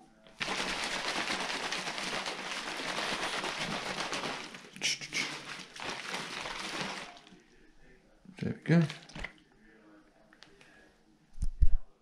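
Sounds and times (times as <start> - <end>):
shaker bottle rattling: 0.3 - 7.4.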